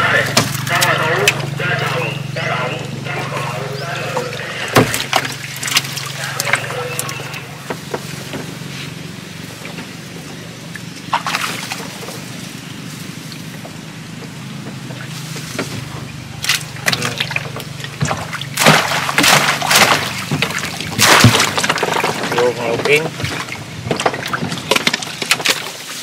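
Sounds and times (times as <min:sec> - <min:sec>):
water sloshing around boat: 0:00.0 - 0:26.0
water splashing off fish trap: 0:03.3 - 0:07.5, 0:11.0 - 0:12.3, 0:16.4 - 0:26.0.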